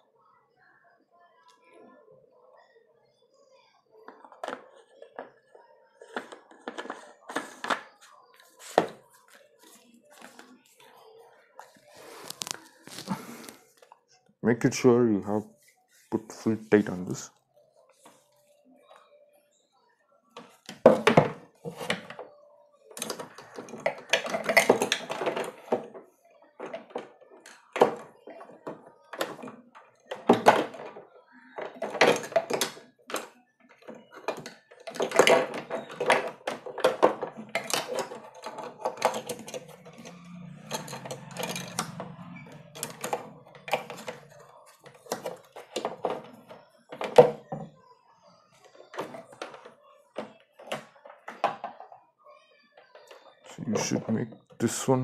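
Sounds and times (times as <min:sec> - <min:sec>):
plastic parts knocking and clicking: 0:04.1 - 0:09.0, 0:20.4 - 0:22.3, 0:22.9 - 0:47.8, 0:48.6 - 0:52.0.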